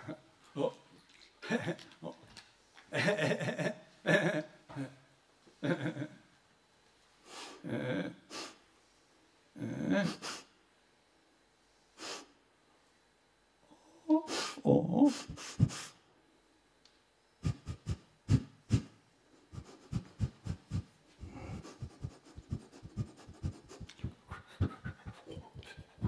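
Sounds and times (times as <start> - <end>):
breathy voiced mouth sounds: 17.4 - 26.0.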